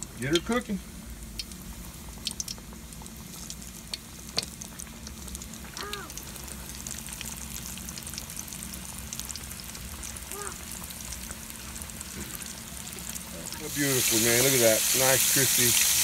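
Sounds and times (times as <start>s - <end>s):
deep-frying sizzle in hot oil: 0.0s - 16.0s.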